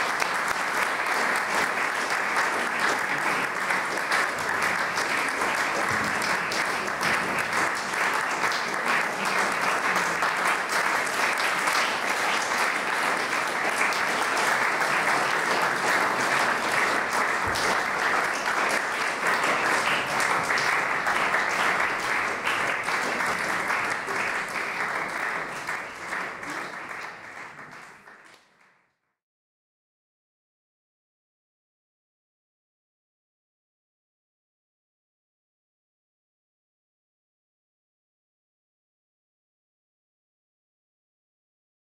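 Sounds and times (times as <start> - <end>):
audience applauding: 0.0 - 28.8.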